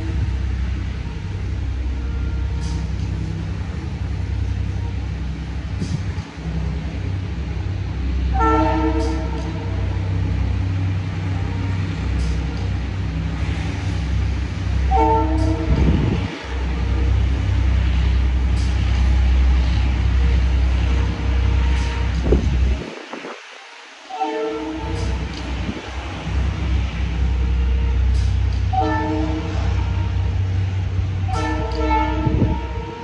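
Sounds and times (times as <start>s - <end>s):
low rumble: 0.0s - 33.0s
multi-tone horn blast: 8.3s - 10.3s, 14.8s - 18.0s, 20.2s - 22.9s, 24.1s - 25.9s, 26.6s - 33.0s.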